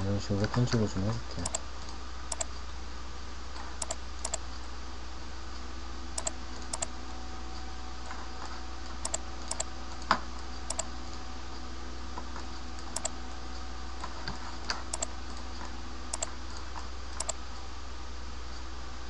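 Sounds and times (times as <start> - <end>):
steady low hum: 0.0 - 19.0
keyboard and mouse clicks: 1.4 - 2.5, 3.6 - 4.4, 6.2 - 6.9, 8.9 - 10.1, 10.7 - 10.9, 12.8 - 13.2, 14.0 - 15.5, 16.1 - 17.4.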